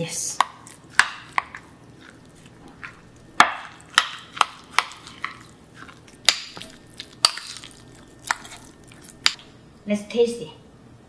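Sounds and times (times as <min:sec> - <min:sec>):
marinade squelching: 0:00.1 - 0:09.4.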